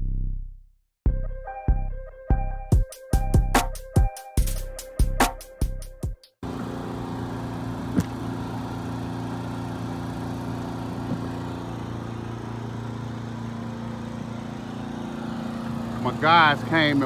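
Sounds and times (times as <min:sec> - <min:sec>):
engine idling: 0:06.4 - 0:17.0.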